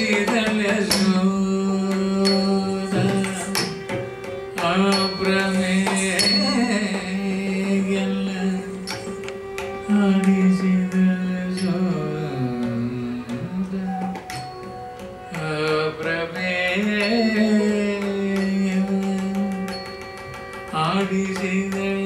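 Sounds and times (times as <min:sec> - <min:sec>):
person singing ornamented melody: 0:04.6 - 0:22.0.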